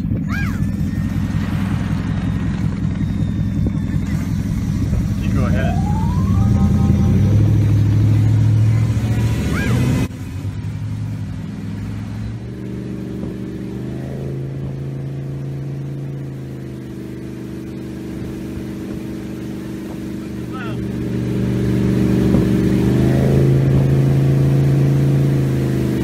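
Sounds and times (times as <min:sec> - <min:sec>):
motorboat engine drone: 0:00.0 - 0:26.0
wind and water rushing: 0:17.5 - 0:20.4, 0:21.0 - 0:26.0.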